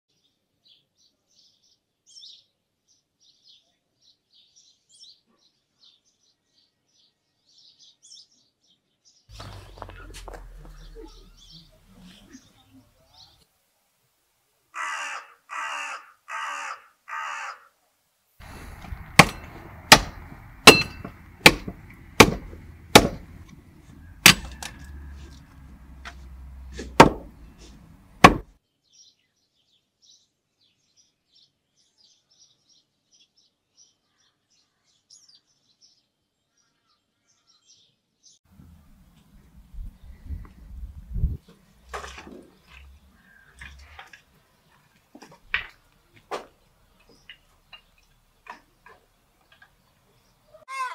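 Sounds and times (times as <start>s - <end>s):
bird harsh crow-like calls: 14.8s - 17.8s, 18.4s - 27.7s
sharp loud knocks: 18.4s - 28.5s
low steady rumble: 38.5s - 41.4s.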